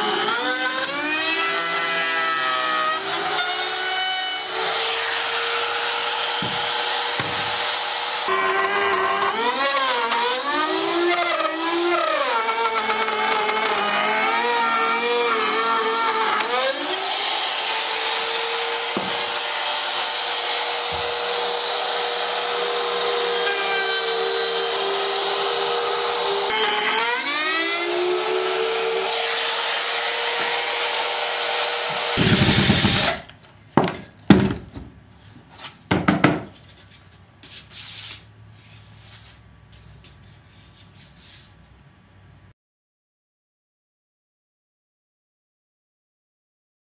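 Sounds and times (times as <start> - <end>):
router cutting plywood: 0.0 - 33.3.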